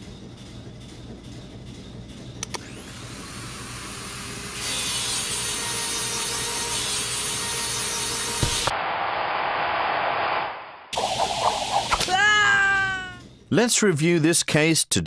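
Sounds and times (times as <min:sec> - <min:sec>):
air grinder grinding metal: 0:04.5 - 0:08.7.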